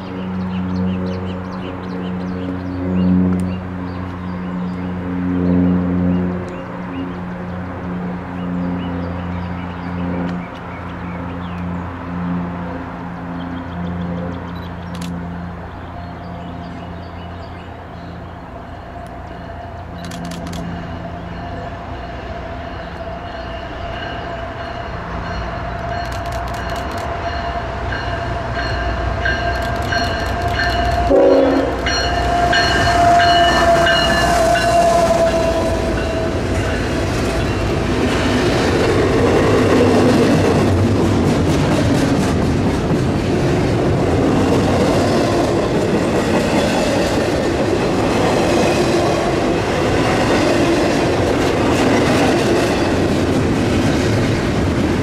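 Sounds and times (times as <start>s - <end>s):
freight train rumbling past: 0.0s - 55.0s
train horn chord: 30.4s - 37.9s.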